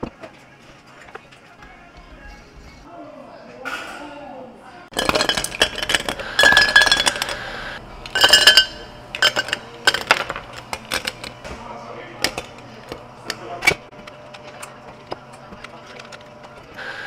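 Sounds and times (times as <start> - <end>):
ice cubes clinking in glasses: 4.9 - 11.4.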